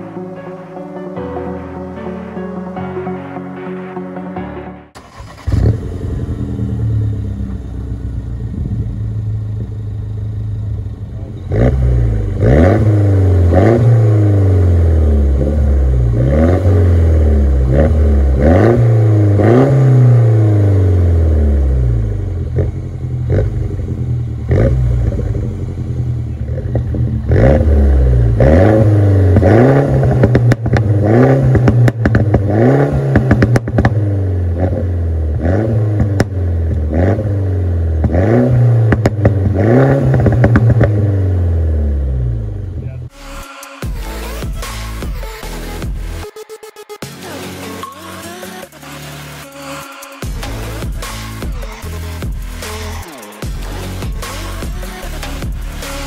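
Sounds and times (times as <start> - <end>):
car exhaust idling and revving: 5.0 - 46.2, 48.7 - 56.0
exhaust crackles and pops: 22.3 - 34.8, 35.5 - 37.2, 38.0 - 41.2.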